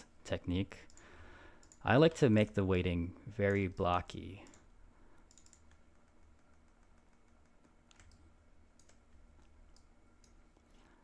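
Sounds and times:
keyboard and mouse clicks: 0:00.8 - 0:01.8, 0:04.4 - 0:10.9.

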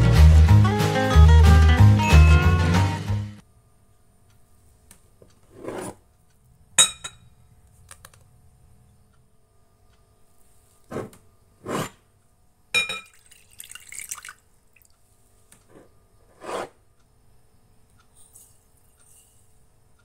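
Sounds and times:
glass clink: 0:06.8 - 0:07.3, 0:12.7 - 0:13.4
milk pouring into glass bowl: 0:13.0 - 0:14.9.

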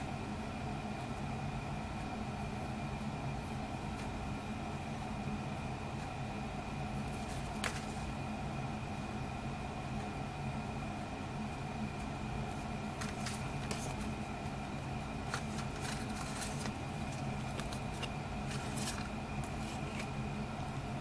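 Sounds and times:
steady low hum: 0:00.0 - 0:21.0
paper rustling and clicks: 0:07.0 - 0:08.1, 0:12.5 - 0:14.2, 0:15.2 - 0:20.2.

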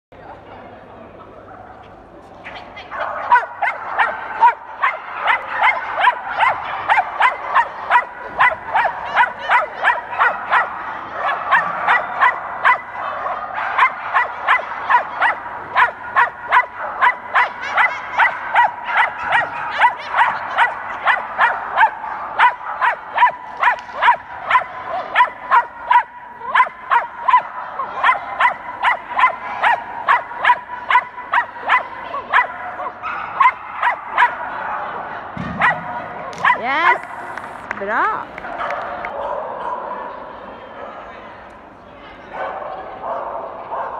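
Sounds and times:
small dog barking: 0:02.9 - 0:34.9, 0:35.6 - 0:37.0.

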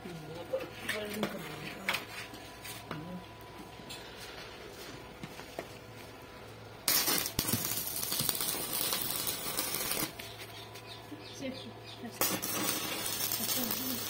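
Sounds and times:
arc welding crackling hiss: 0:06.8 - 0:10.3, 0:12.2 - 0:14.0.

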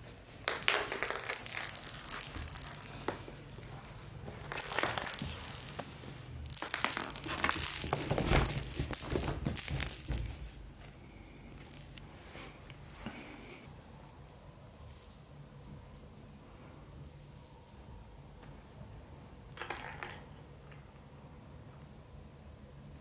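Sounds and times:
plastic ball rattling on tile: 0:00.5 - 0:10.5, 0:11.6 - 0:12.1, 0:12.7 - 0:13.1, 0:19.5 - 0:20.3.

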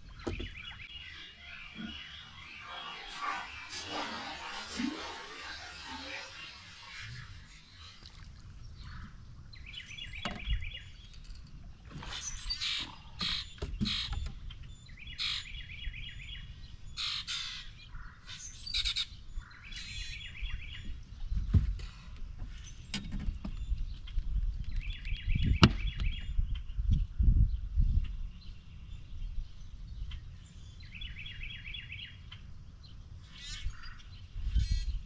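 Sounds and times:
songbirds singing: 0:00.0 - 0:35.0.

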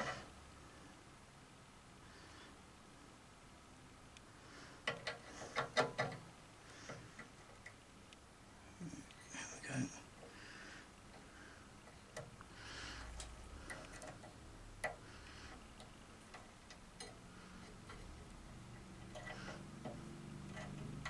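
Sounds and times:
light clicks and metallic taps: 0:04.1 - 0:06.2, 0:11.1 - 0:21.0.

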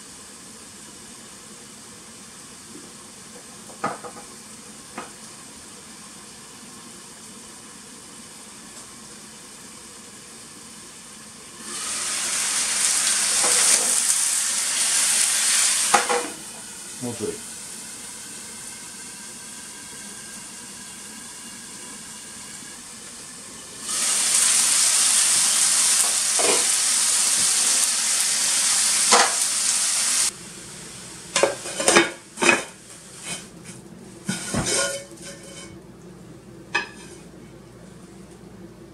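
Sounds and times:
dumplings sizzling in a frying pan: 0:00.0 - 0:33.6
pan and plate clinking: 0:26.0 - 0:26.7, 0:31.4 - 0:33.5, 0:34.2 - 0:35.8, 0:36.7 - 0:37.2.

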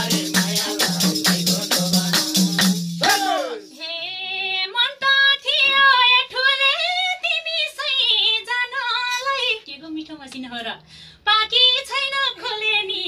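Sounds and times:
woman singing unaccompanied: 0:00.0 - 0:01.8, 0:03.3 - 0:10.0, 0:11.3 - 0:13.0
drum and tambourine: 0:00.0 - 0:03.6.

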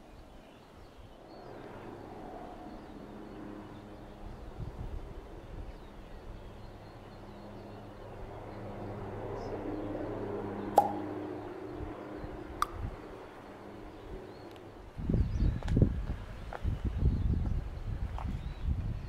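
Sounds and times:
low steady hum: 0:00.0 - 0:15.4
sharp clicks: 0:12.6 - 0:12.8.

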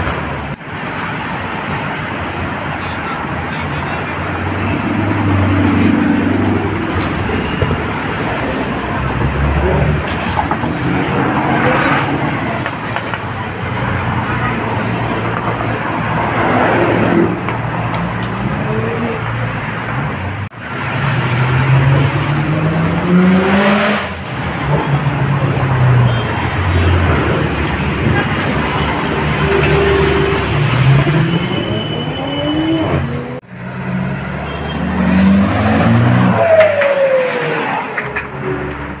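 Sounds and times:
cars accelerating past: 0:04.3 - 0:12.9, 0:20.7 - 0:39.0.

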